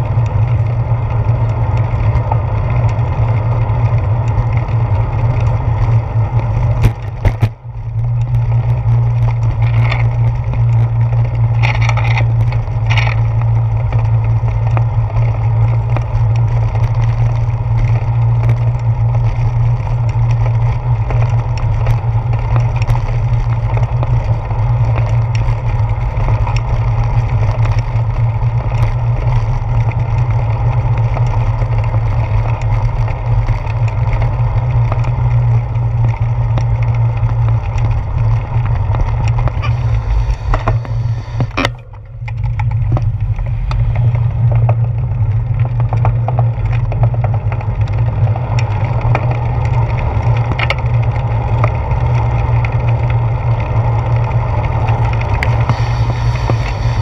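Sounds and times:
bicycle road rumble: 0.0s - 57.0s
wind buffeting: 38.8s - 45.6s, 54.9s - 57.0s.

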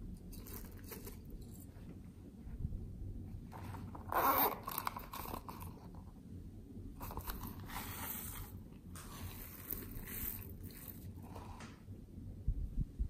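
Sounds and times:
plastic container crunchy rustling: 7.0s - 11.3s.

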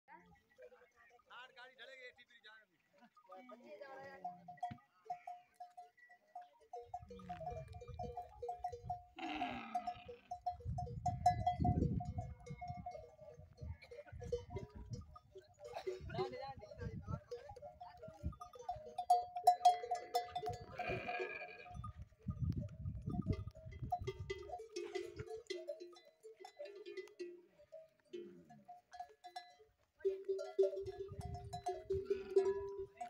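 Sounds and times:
camel bells clanking: 3.1s - 33.0s
camels calling: 6.9s - 22.0s, 30.5s - 33.0s.

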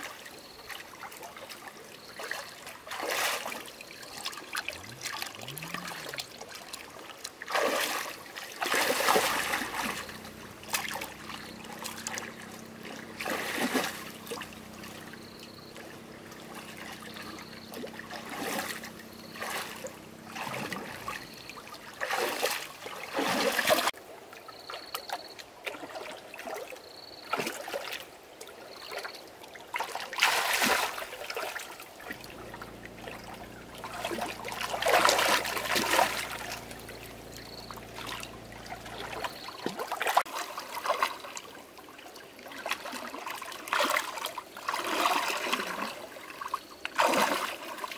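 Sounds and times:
water splashing and trickling: 0.0s - 47.9s
faint low hum: 3.8s - 7.0s, 8.6s - 23.9s, 32.0s - 40.2s.

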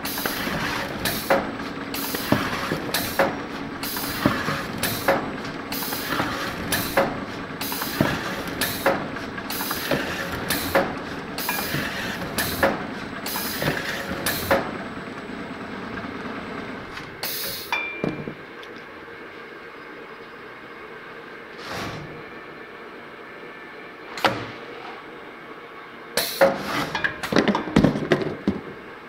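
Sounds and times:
steady machine noise: 0.0s - 21.3s.

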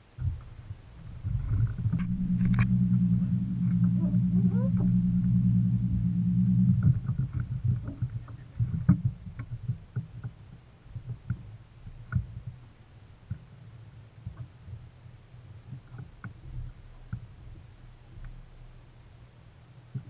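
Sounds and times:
boat motor running: 0.1s - 10.2s.

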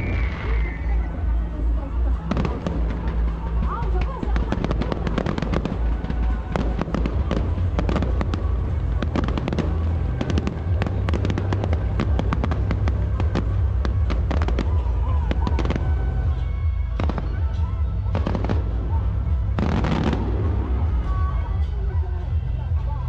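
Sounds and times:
low rumble: 0.0s - 23.0s
fireworks pops and bangs: 2.0s - 16.1s, 16.9s - 21.2s.

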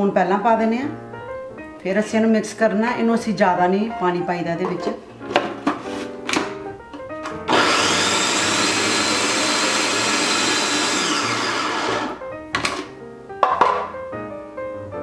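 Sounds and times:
food processor motor whine: 7.3s - 12.2s
plastic lid clicks and knocks: 13.4s - 13.9s.

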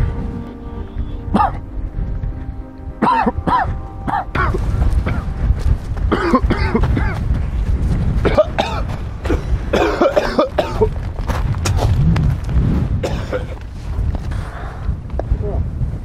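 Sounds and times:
wind rumble on microphone: 0.0s - 16.0s
people coughing: 1.3s - 1.6s, 3.0s - 5.4s, 6.1s - 7.3s, 8.2s - 10.9s, 13.0s - 13.6s.

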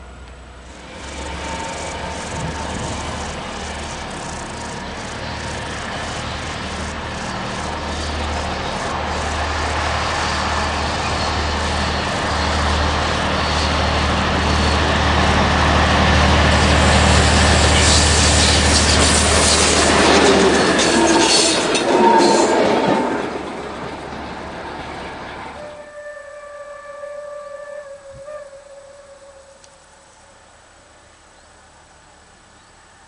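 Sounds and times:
diesel locomotive engine drone: 0.0s - 33.0s
wheels clattering on rails: 0.7s - 25.6s.

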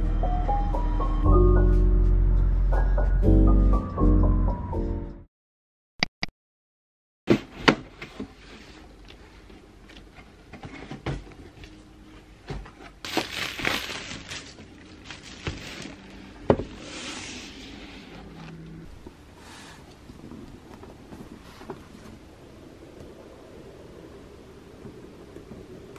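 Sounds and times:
plastic wrap rustling: 12.7s - 16.9s.

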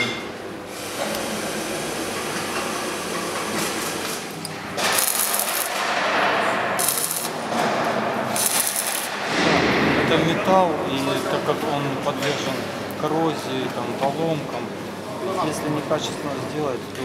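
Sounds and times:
workshop hiss: 0.0s - 16.8s
arc welding crackling sizzle: 0.7s - 6.1s, 6.8s - 7.5s, 8.3s - 9.3s.

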